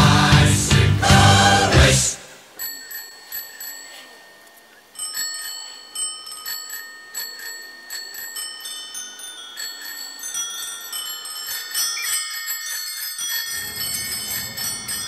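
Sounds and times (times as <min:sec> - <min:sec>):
music track: 0:00.0 - 0:02.4
bicycle bells ringing rhythmically: 0:02.5 - 0:15.0.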